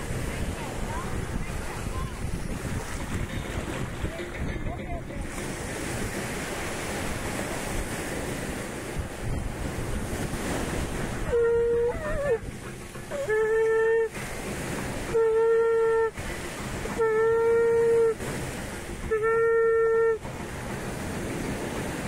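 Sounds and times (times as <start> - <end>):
surf washing in: 0.0 - 22.0
wind on microphone: 0.0 - 22.0
conch shell blasts: 11.3 - 12.2, 15.1 - 16.2, 16.9 - 18.2.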